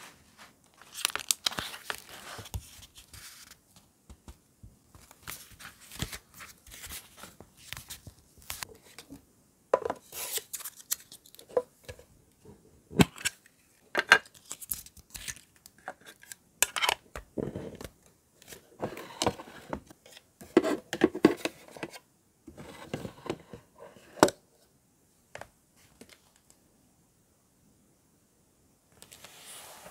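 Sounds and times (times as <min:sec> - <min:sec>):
paper rustling: 0:00.0 - 0:03.9, 0:05.0 - 0:09.1.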